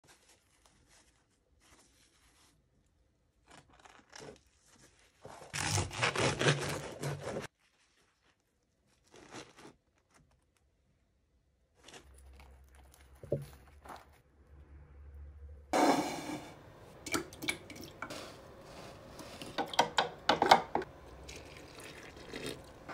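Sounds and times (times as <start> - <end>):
bread crust crackling: 0.0 - 11.1.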